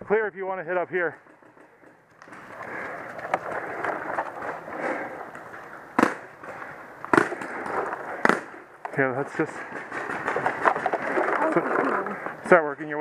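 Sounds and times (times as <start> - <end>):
paintball marker shots: 6.0 - 6.3, 7.1 - 8.6.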